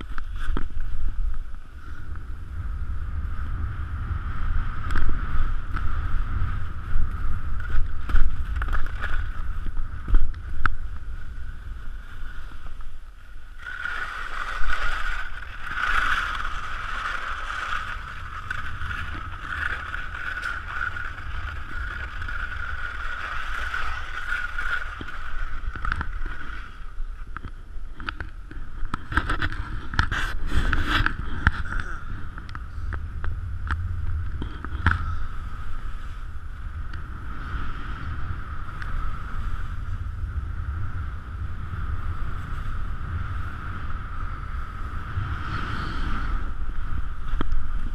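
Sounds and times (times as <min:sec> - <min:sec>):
wind buffeting microphone: 0:00.0 - 0:47.9
skis hissing over snow: 0:11.0 - 0:26.9, 0:44.2 - 0:46.6.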